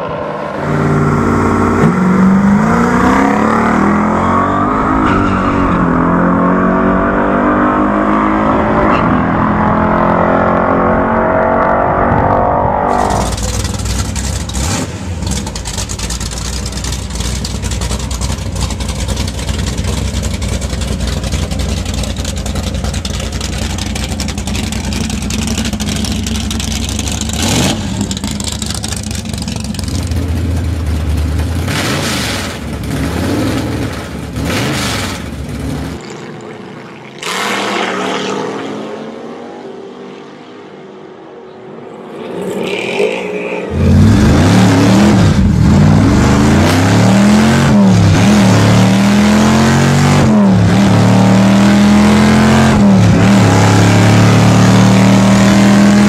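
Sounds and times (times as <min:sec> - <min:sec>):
car launching down drag strip: 0:00.0 - 0:40.7
car engine idling and revving: 0:00.0 - 0:56.0.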